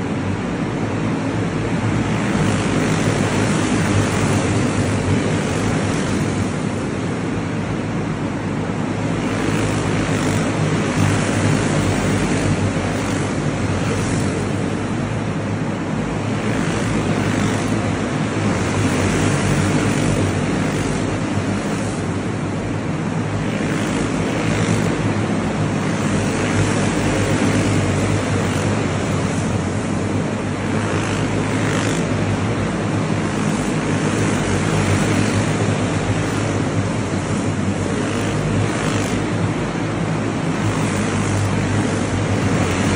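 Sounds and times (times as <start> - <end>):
kart engines racing: 1.2 - 42.9.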